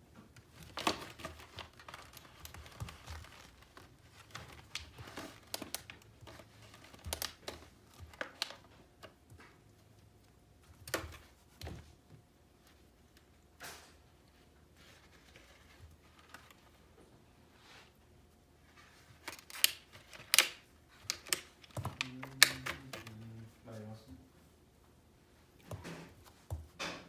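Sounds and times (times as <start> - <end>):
plastic rustling and crackling: 0.1 - 9.6, 18.6 - 23.6.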